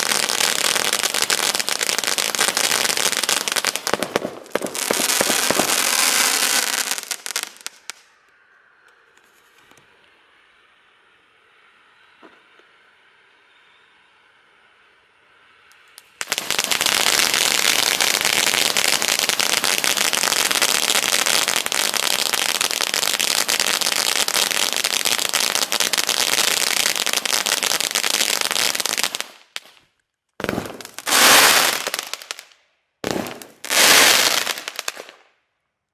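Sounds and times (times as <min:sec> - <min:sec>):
fireworks crackling hiss: 0:00.0 - 0:08.2, 0:15.8 - 0:29.8, 0:30.4 - 0:35.2.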